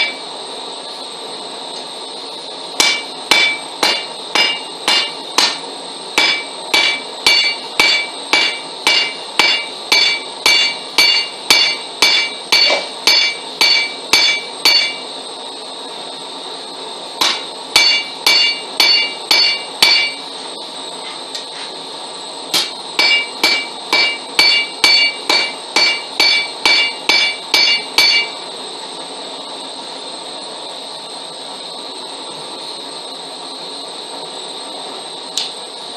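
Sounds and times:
hammer striking steel on anvil: 0.0s - 0.2s, 2.8s - 15.1s, 17.2s - 20.3s, 22.5s - 28.4s
steady background hiss: 0.0s - 35.9s.

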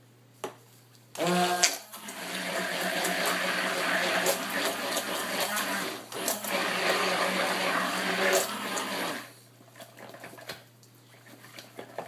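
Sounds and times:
hand-held electric blender running: 1.2s - 9.3s.

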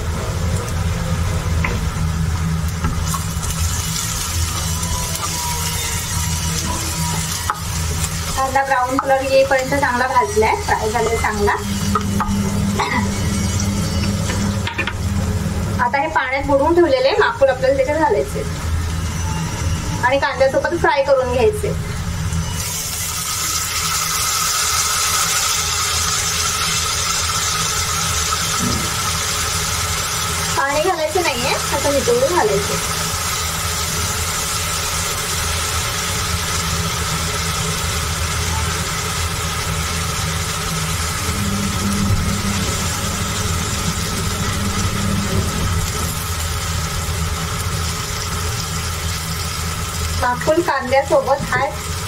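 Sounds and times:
constant low hum: 0.0s - 22.6s, 38.5s - 52.0s
squid sizzling in a pan: 2.4s - 15.2s, 22.2s - 52.0s.

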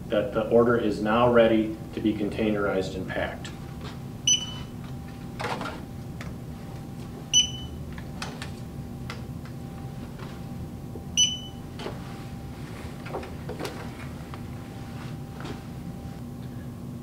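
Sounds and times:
items clicking and knocking on shelves: 5.4s - 6.4s, 13.0s - 14.4s.

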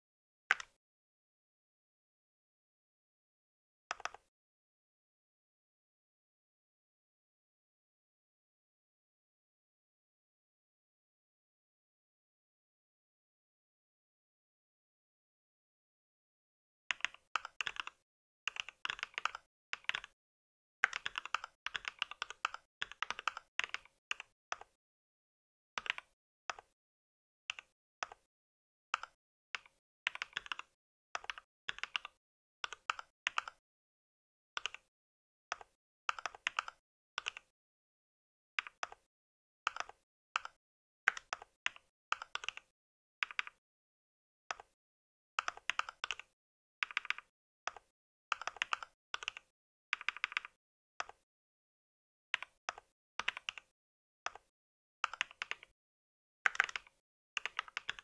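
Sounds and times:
typing on mechanical keyboard: 0.5s - 0.8s, 16.9s - 20.2s, 20.8s - 24.8s, 25.8s - 26.7s, 29.0s - 33.6s, 35.5s - 37.5s, 39.7s - 43.6s, 45.4s - 51.2s, 52.4s - 53.7s, 55.0s - 55.7s, 56.5s - 58.0s.

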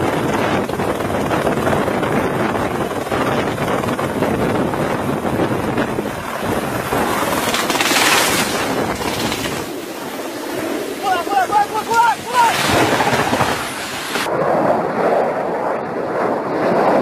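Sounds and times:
helicopter rotor and engine: 0.0s - 14.4s
wind buffeting microphone: 0.0s - 17.0s
high rushing hiss: 7.0s - 14.3s.

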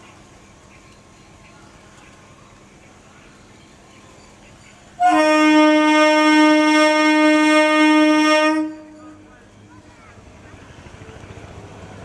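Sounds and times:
faint station background: 0.0s - 12.0s
train horn blast: 5.0s - 9.2s.

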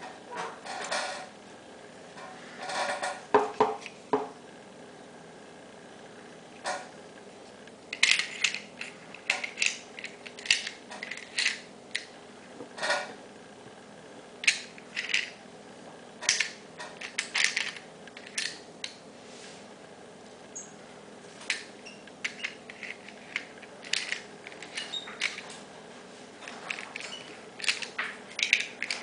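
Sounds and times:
metal mechanism clicking: 26.7s - 29.0s.

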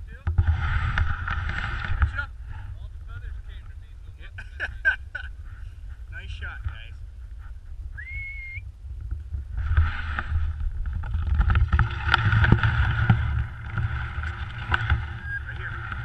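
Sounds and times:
wind buffeting microphone: 0.0s - 16.0s
dog whistle blast: 8.0s - 8.6s.

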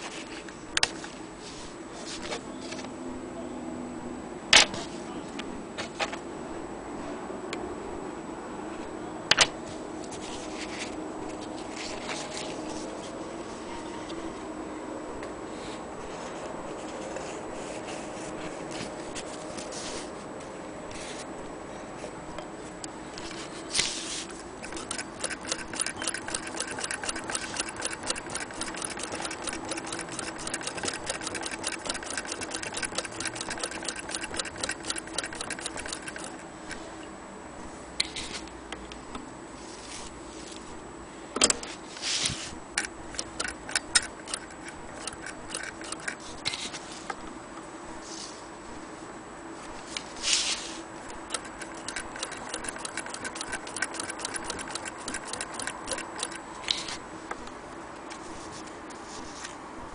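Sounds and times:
sewing machine clicks and knocks: 24.6s - 36.4s, 42.7s - 46.4s, 51.1s - 56.4s
sewing machine ticking: 24.6s - 36.4s, 42.7s - 46.4s, 51.1s - 56.5s.

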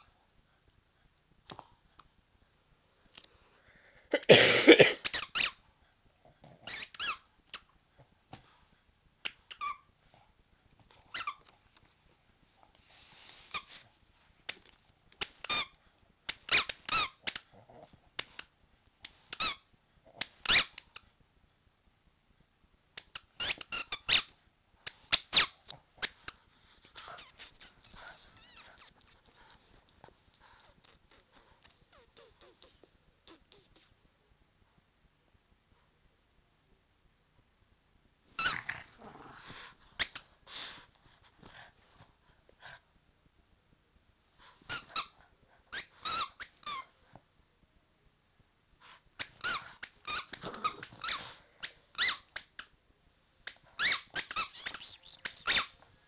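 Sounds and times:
dog chewing squeaky ball: 6.6s - 7.2s, 27.0s - 29.2s, 45.7s - 46.9s, 49.2s - 51.3s, 51.9s - 52.3s, 53.7s - 55.7s.

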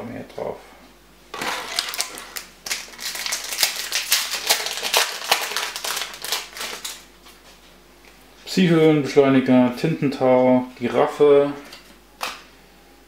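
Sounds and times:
foil wrapper crinkling: 1.4s - 7.1s.

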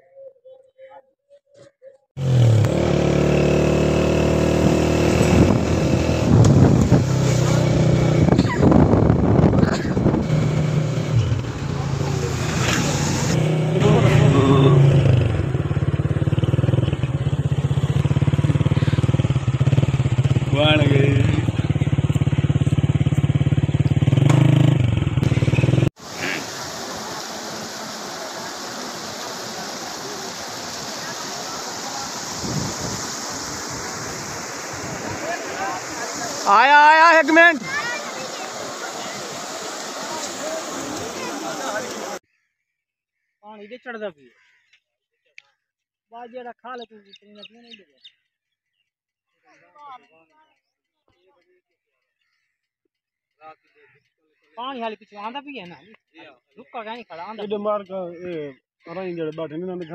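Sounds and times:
rush of floodwater: 3.8s - 9.0s, 9.6s - 14.8s, 26.0s - 42.2s
motorcycle engine running: 13.3s - 26.4s.

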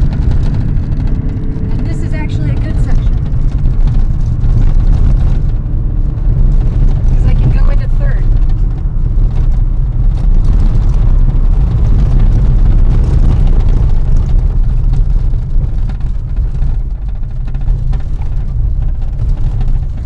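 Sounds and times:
car road noise rumble: 0.0s - 20.0s.

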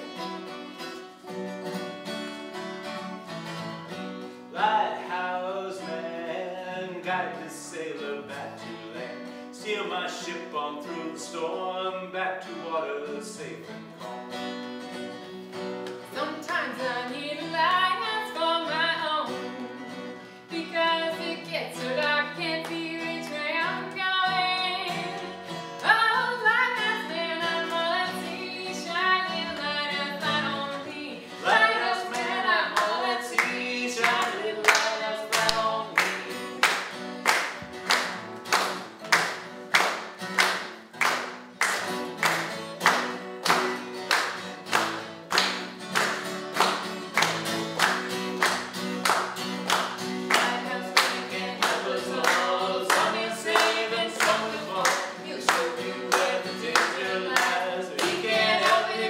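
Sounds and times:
strummed acoustic guitar: 0.0s - 59.0s
person singing: 4.5s - 13.6s, 16.2s - 36.6s, 50.3s - 59.0s
hand claps: 15.7s - 16.8s, 21.9s - 23.4s, 32.0s - 59.0s.

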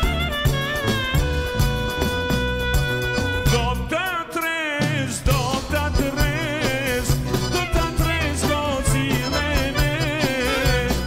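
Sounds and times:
wavering lead melody: 0.0s - 4.2s
folk band playing: 0.0s - 11.0s
frame drum and drum kit beat: 0.0s - 11.0s.

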